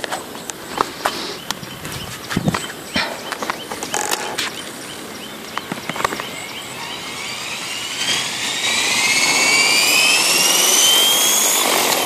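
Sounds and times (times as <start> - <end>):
footsteps on gravel: 0.0 - 4.7
rc helicopter whine rising: 0.2 - 12.0.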